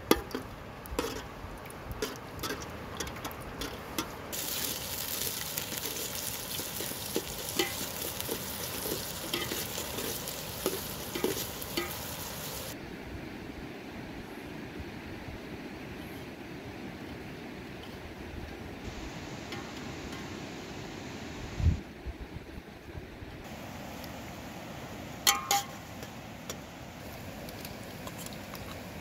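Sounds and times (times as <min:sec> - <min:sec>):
ladle scraping steel pot: 0:01.0 - 0:01.3, 0:02.0 - 0:12.7
onions sizzling in fat: 0:04.3 - 0:12.8.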